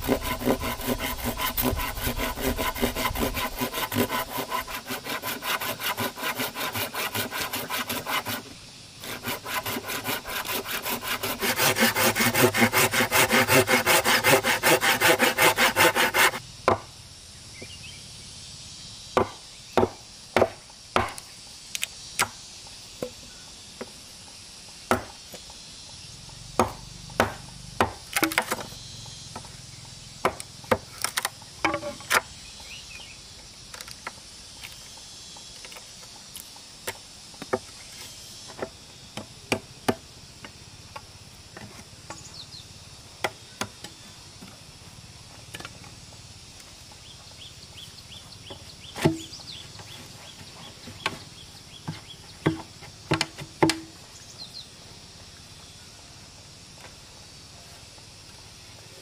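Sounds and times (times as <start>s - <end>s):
knocks on bamboo: 16.6s - 16.9s, 19.2s - 21.2s, 24.9s - 25.2s, 26.6s - 28.7s, 30.2s - 32.2s, 48.5s - 49.3s, 51.8s - 54.0s.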